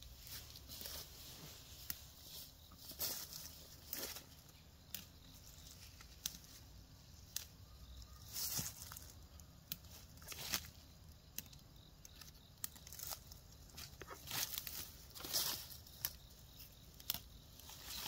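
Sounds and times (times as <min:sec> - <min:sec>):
leaves rustling: 0:00.0 - 0:18.0
plant stems snapping: 0:03.9 - 0:17.4.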